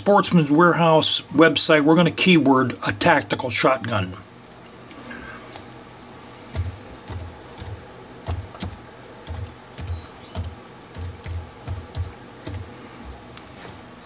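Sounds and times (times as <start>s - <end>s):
typing on a keyboard: 6.5s - 12.7s.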